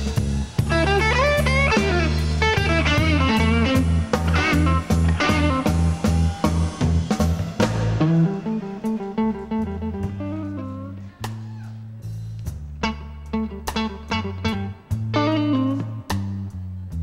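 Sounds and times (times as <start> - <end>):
electric guitar: 0.0 - 11.8, 12.4 - 16.7
bass: 0.0 - 17.0
drums: 0.0 - 17.0.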